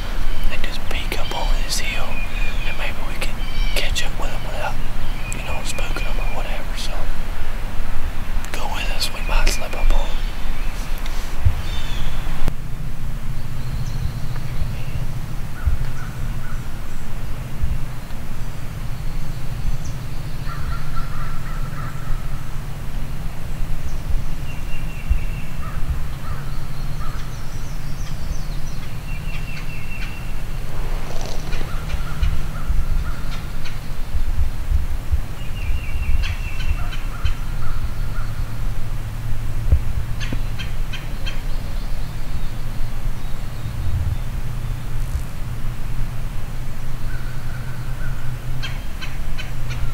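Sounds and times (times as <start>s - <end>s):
harsh bird calls: 0.0s - 12.5s, 13.3s - 39.1s
songbird phrases: 0.0s - 12.5s, 13.2s - 39.3s, 40.0s - 46.0s
steady low hum: 0.0s - 49.9s.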